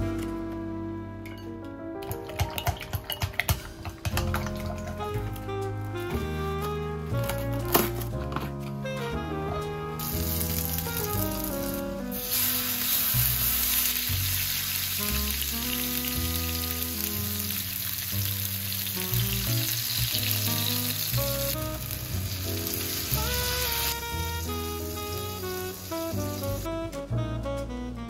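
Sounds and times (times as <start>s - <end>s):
background music: 0.0s - 28.0s
food sizzling in a frying pan: 10.0s - 26.7s.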